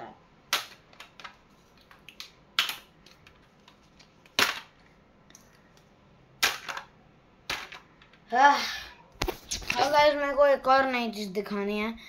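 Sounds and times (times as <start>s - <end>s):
sharp knocks of hard toys: 0.5s - 1.1s, 6.4s - 6.9s.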